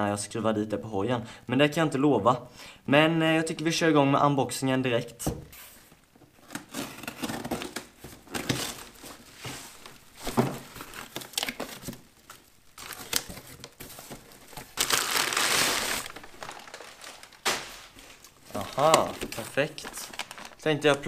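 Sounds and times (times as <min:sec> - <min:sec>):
packing paper rustling: 0:05.6 - 0:21.0
plastic wrap crinkling: 0:06.4 - 0:21.0.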